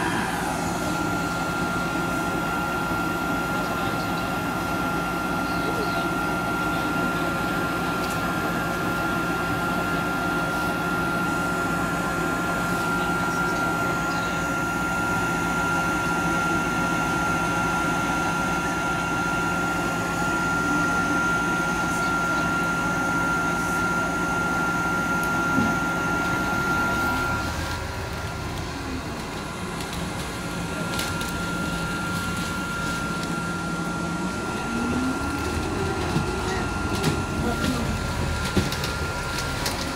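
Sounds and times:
thin high whine: 0:00.0 - 0:08.4
tram electrical hum: 0:00.0 - 0:39.9
rising low motor tone: 0:32.4 - 0:38.0.

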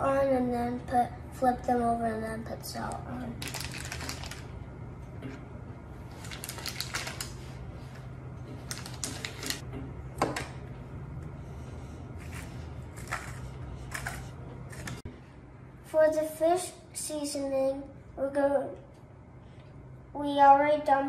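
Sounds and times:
low hum: 0:00.0 - 0:15.9
paper crinkling: 0:03.4 - 0:04.5, 0:06.1 - 0:07.6.

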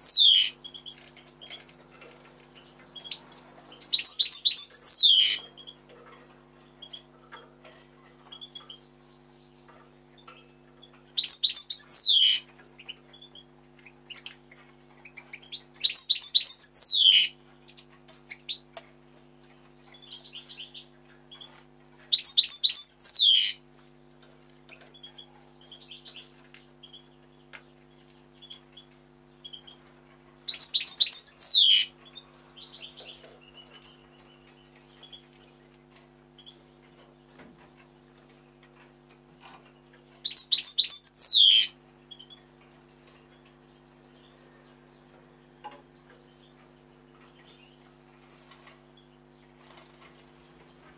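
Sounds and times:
soft bird twitters: 0:00.0 - 0:01.6, 0:02.6 - 0:05.8, 0:08.0 - 0:18.6, 0:19.6 - 0:23.6, 0:24.8 - 0:35.5, 0:39.4 - 0:42.5
finch singing: 0:00.0 - 0:18.7, 0:19.6 - 0:23.6, 0:24.7 - 0:35.6, 0:39.4 - 0:42.4.

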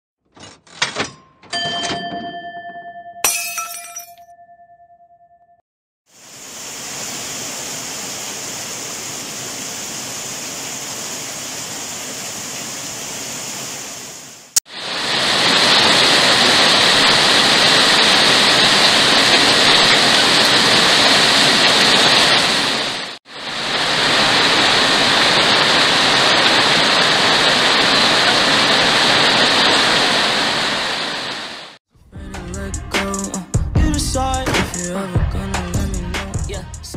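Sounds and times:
steady rain falling: 0:06.2 - 0:31.8.

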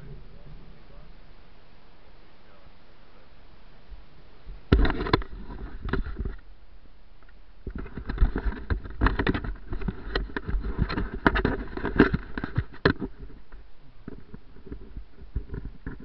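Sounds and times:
camera handling knocks and rubbing: 0:04.7 - 0:06.4, 0:07.7 - 0:16.0.

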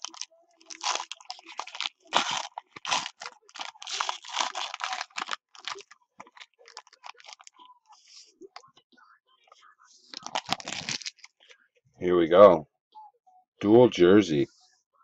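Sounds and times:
foil wrapper tearing and crumpling: 0:00.0 - 0:07.6, 0:10.1 - 0:11.4.

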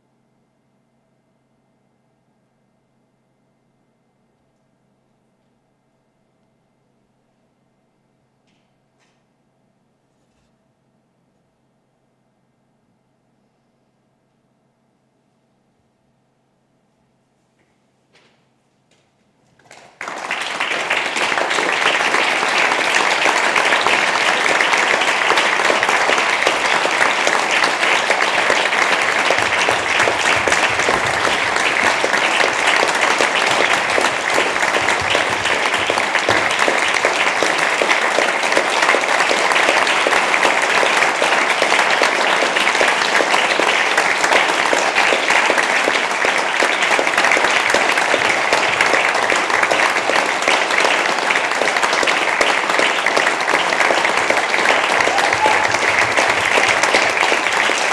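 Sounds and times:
audience applauding: 0:19.6 - 0:57.9.

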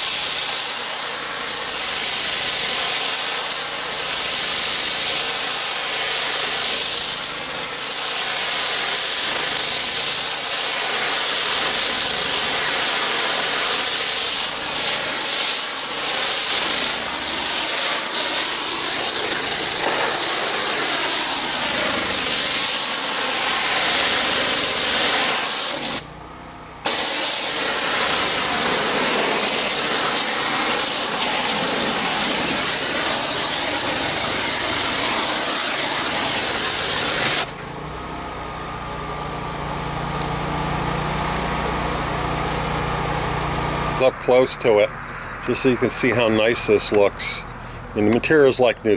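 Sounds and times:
pressure washer spraying tarp: 0:00.0 - 0:26.2, 0:26.8 - 0:44.1.

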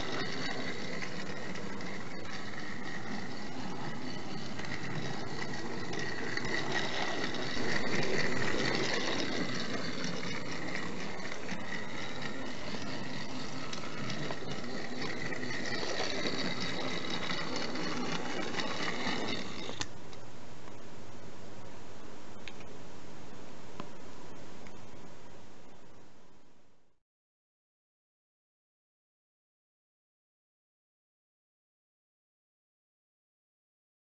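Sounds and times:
toy train motor whirring: 0:00.0 - 0:19.9.

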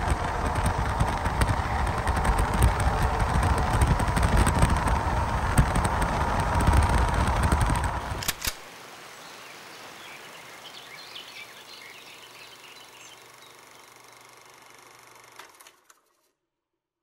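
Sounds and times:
road and wind noise in car: 0:00.0 - 0:08.5
sharp clicks: 0:00.0 - 0:08.6.

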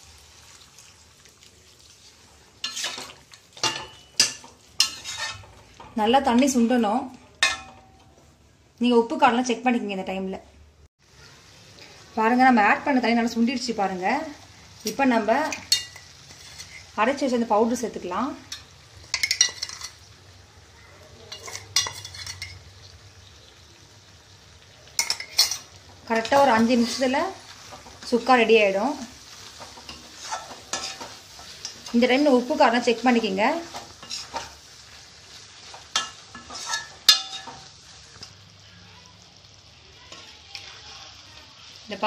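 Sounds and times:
faint frying sizzle: 0:00.0 - 0:42.0
metal spoon scraping a steel jar: 0:04.2 - 0:05.5, 0:36.0 - 0:37.6
metal ladle clinking against pan: 0:35.9 - 0:37.7.

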